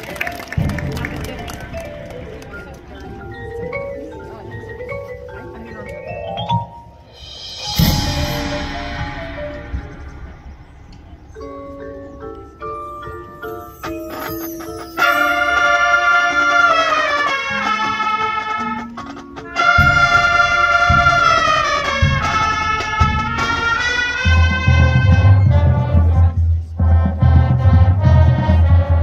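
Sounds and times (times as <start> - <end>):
drums: 0.4 - 29.0
brass chords sliding downward: 19.6 - 29.0.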